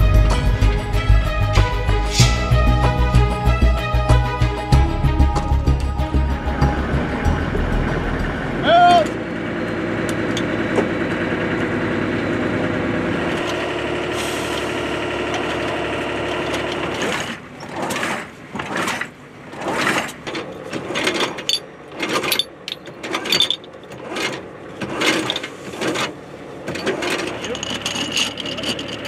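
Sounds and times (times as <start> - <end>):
engine running: 0.0 - 29.0
metal knocks and clanks: 20.2 - 29.0.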